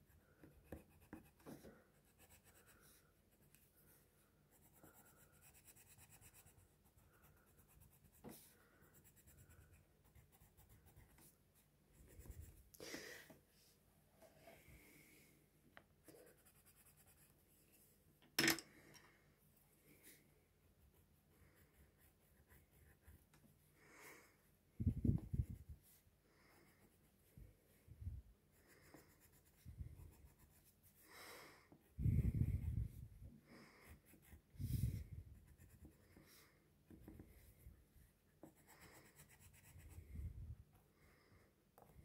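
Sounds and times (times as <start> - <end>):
pencil scratching on paper: 0.1 - 12.6, 16.0 - 17.4, 20.8 - 23.5, 28.6 - 31.0, 33.8 - 40.1.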